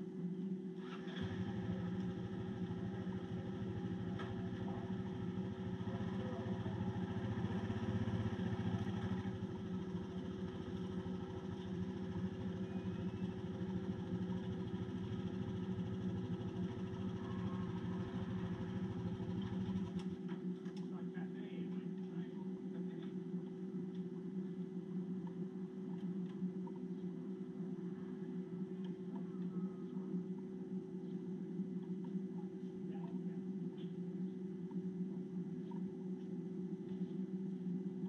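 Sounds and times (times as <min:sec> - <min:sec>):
motorcycle engine running: 0:00.6 - 0:20.9.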